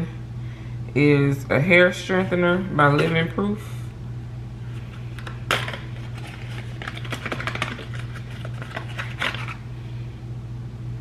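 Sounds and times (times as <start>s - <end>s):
steady low hum: 0.0s - 11.0s
packaging crackling in hands: 5.2s - 9.6s.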